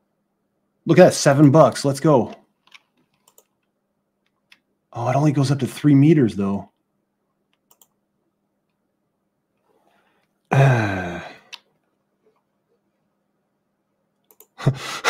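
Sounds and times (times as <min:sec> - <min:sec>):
man sighing: 0:10.5 - 0:11.6, 0:14.6 - 0:15.0.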